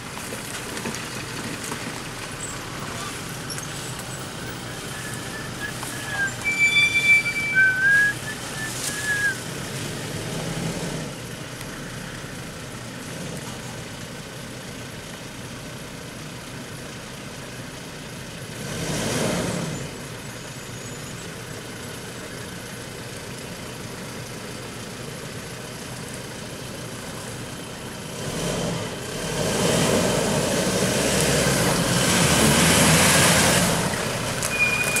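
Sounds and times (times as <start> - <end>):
pickup engine running: 0.0 - 35.0
high whistled notes: 4.3 - 9.4, 34.5 - 35.0.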